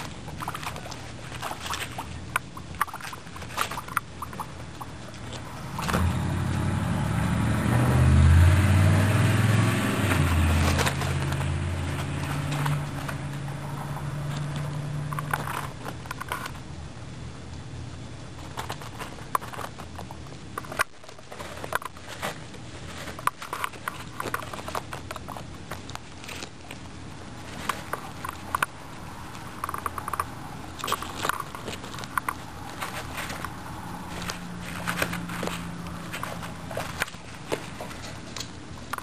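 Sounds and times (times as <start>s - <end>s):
guinea pigs chewing carrot: 0.0s - 39.0s.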